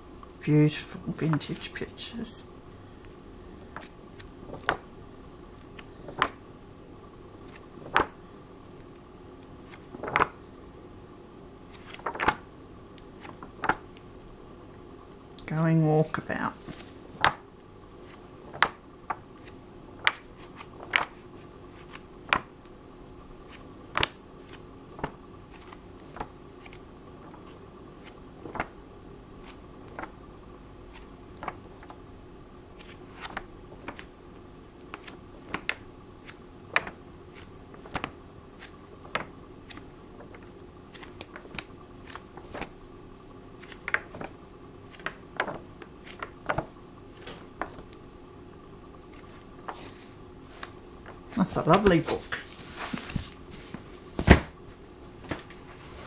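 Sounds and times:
steady hum: 0.0 - 56.0
book pages turning: 3.5 - 4.9, 5.5 - 6.4, 7.4 - 10.4, 11.7 - 14.3, 16.5 - 22.8, 23.4 - 28.8, 29.4 - 30.2, 30.9 - 32.0, 32.7 - 42.8, 43.6 - 48.0, 49.1 - 54.4.

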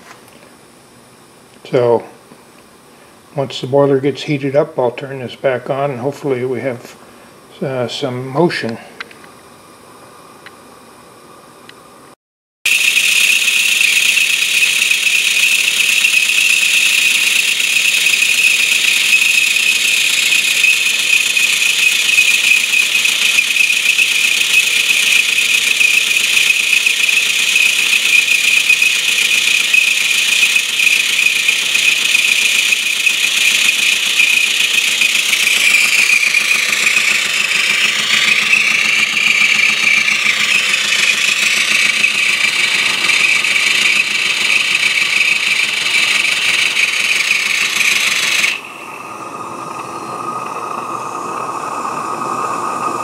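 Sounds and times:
steam hissing loudly: 12.7 - 53.0.

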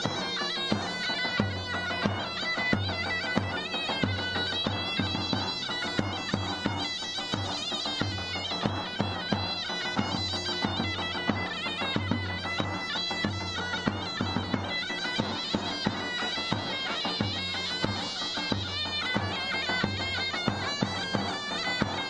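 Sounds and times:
drum beats: 0.0 - 22.0
shrill reed pipe melody: 0.0 - 22.0.

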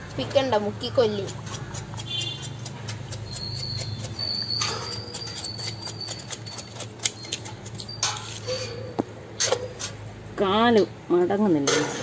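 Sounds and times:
knife scraping skin: 0.9 - 10.0.

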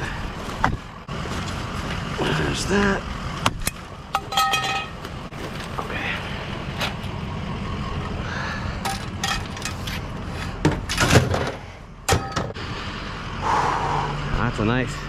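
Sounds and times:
vehicle engine running: 0.0 - 15.0
sharp knocks and clunks: 10.6 - 12.6.

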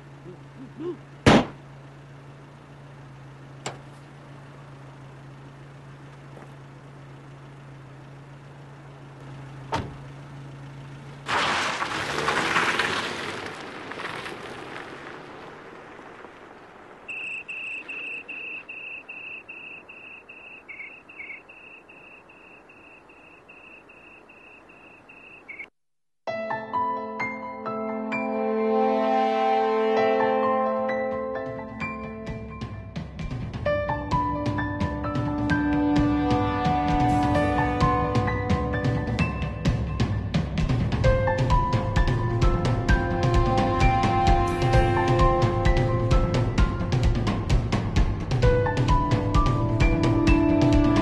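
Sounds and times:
cricket chirping: 17.1 - 25.7.

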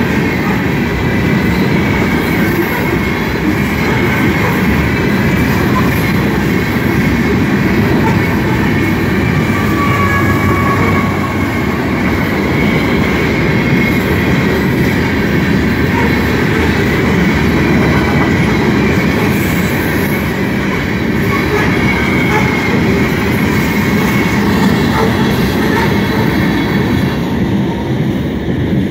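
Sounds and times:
train wheels rumbling on rails: 0.0 - 28.9
wheel squeals: 7.8 - 14.4.

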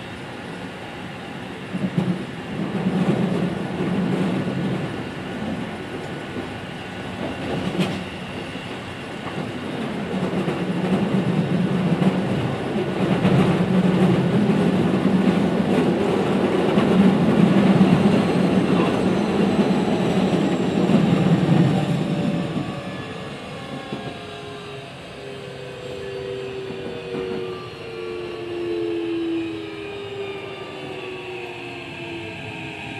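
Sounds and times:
train wheels rumbling on rail: 0.0 - 32.9
rail-joint clatter: 7.2 - 8.1.

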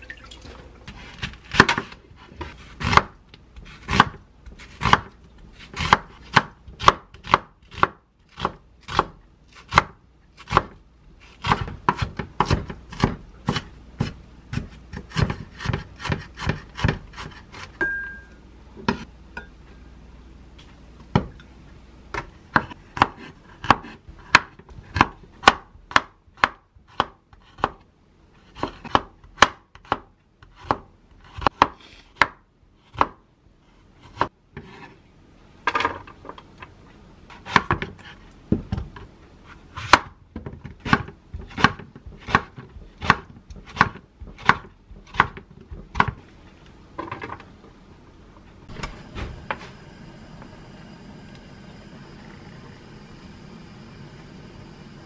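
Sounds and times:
knife chopping onion on board: 0.9 - 17.9, 22.2 - 27.8, 28.5 - 33.2, 34.0 - 34.9, 37.3 - 46.2.

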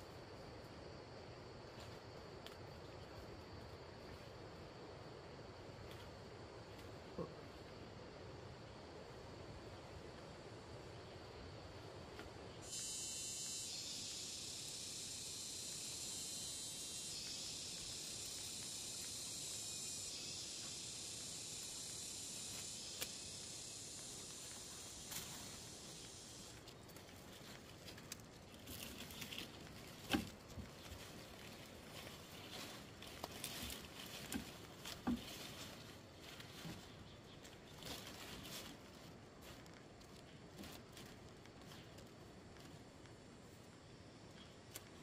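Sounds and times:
high dense insect buzz: 0.0 - 45.0
even hiss: 10.6 - 36.2.

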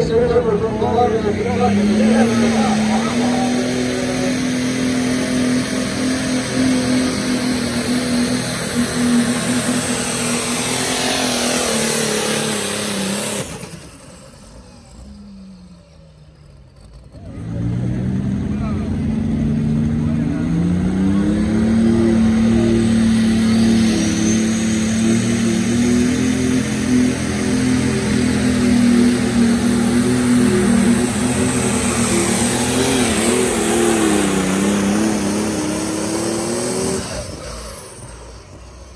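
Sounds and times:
diesel engine running under load: 0.0 - 38.9.

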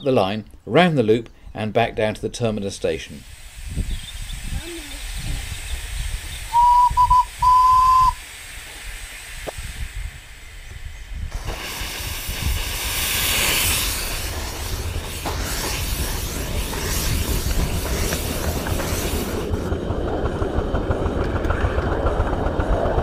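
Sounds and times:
loud hiss of steam: 2.8 - 19.9
steam locomotive whistle: 6.5 - 8.2.

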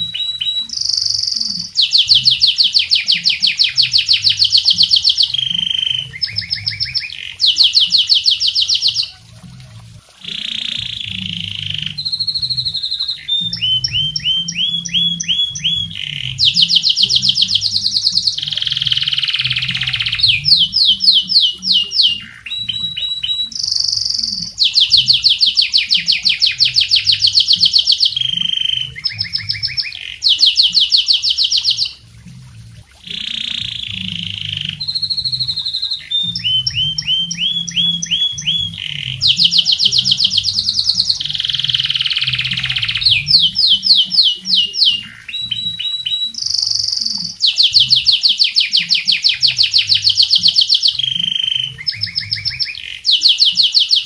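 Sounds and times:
canary singing trills: 0.0 - 32.1, 33.0 - 54.0.

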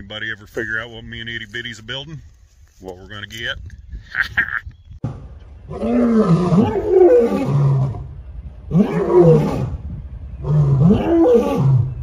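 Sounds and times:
lion roaring: 5.6 - 9.8, 10.4 - 12.0.

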